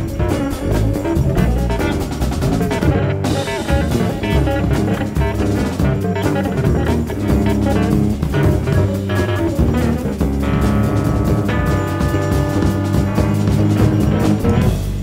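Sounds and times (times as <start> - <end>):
drum kit: 0.0 - 15.0
electric bass guitar: 0.0 - 15.0
electric guitar: 0.0 - 15.0.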